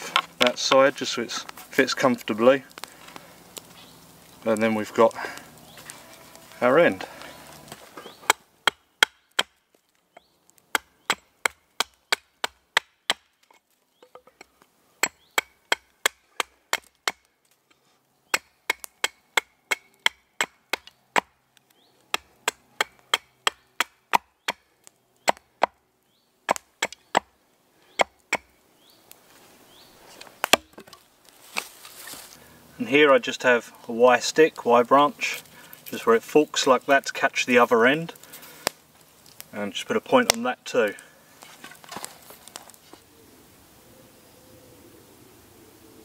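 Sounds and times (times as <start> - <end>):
hatchet chopping wood: 7.6 - 9.6, 10.2 - 17.3, 18.3 - 21.4, 22.1 - 25.8, 26.5 - 27.3, 27.9 - 28.6, 30.4 - 31.7.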